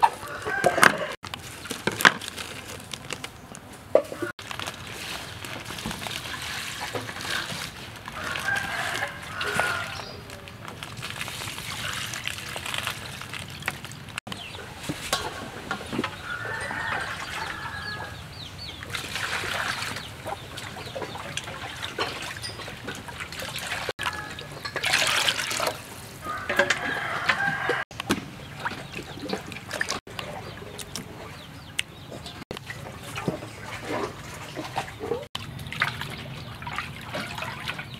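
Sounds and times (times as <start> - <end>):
chickens clucking: 0.0 - 1.2, 14.3 - 19.0, 19.6 - 24.9, 28.4 - 35.3
rooster crowing: 0.1 - 1.2, 8.2 - 10.2, 16.2 - 18.2, 26.2 - 27.9
water splashing into steel bowl: 18.8 - 27.0, 32.6 - 37.9.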